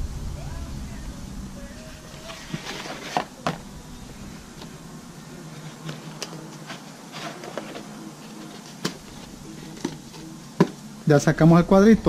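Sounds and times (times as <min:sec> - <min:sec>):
steady low hum: 0:00.0 - 0:12.0
cardboard scraping and rustling: 0:01.8 - 0:10.8.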